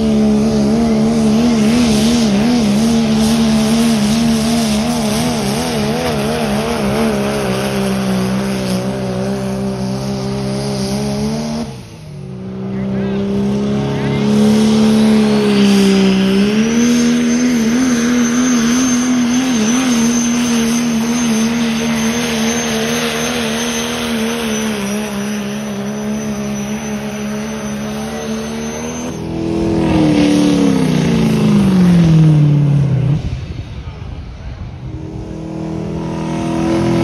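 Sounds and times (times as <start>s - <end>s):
diesel truck engine at full throttle: 0.0s - 37.0s
second diesel truck engine: 0.0s - 37.0s
turbo whistle: 16.5s - 29.3s.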